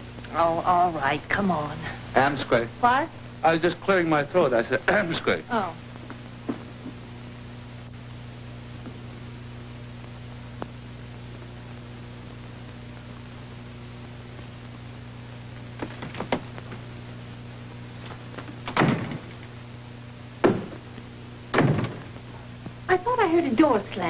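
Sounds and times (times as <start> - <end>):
film soundtrack hum and hiss: 0.0 - 24.0
door slamming: 18.6 - 19.4, 20.4 - 20.8, 21.5 - 22.1
loud bangs: 21.5 - 22.2.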